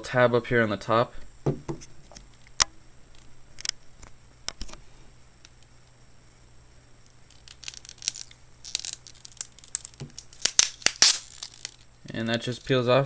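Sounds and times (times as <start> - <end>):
plastic crinkling clicks: 7.3 - 12.4.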